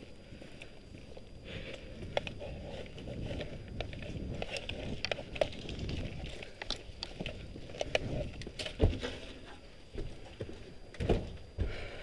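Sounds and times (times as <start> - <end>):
gear rustling: 0.0 - 10.5
footsteps through dry grass: 0.0 - 11.2
twigs cracking: 1.6 - 10.0.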